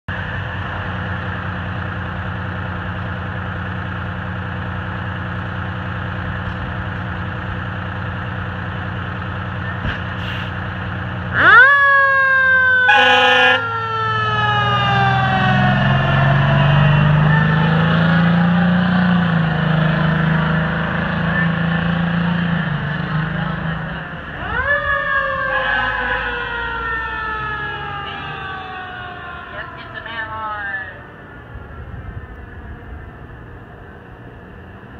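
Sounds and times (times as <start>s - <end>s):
fire engine running: 0.1s - 34.9s
siren winding up and falling: 11.3s - 18.5s, 24.4s - 30.4s
short horn blast: 12.9s - 13.6s.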